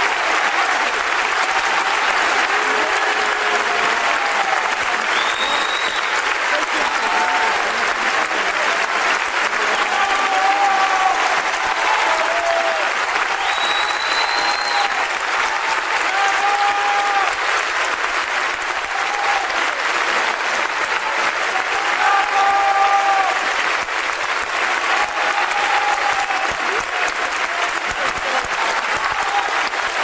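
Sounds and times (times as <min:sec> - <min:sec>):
crowd shouts: 0:00.0 - 0:17.7, 0:18.6 - 0:23.8, 0:24.4 - 0:30.0
audience applauding: 0:00.0 - 0:30.0.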